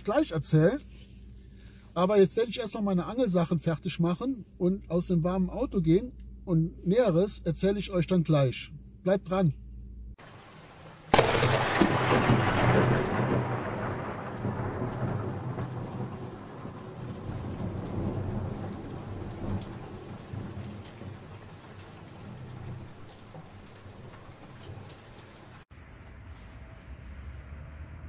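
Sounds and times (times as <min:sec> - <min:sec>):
steady rain: 0:00.0 - 0:06.1, 0:10.2 - 0:25.7
lightning crack: 0:10.2 - 0:24.3
thunder rolling: 0:11.1 - 0:25.6.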